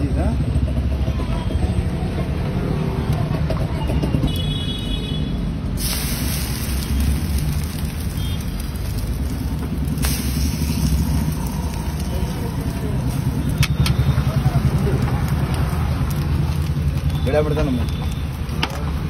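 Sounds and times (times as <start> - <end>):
low rumble of road traffic: 0.0 - 19.0
bread sizzling on a griddle: 5.7 - 19.0.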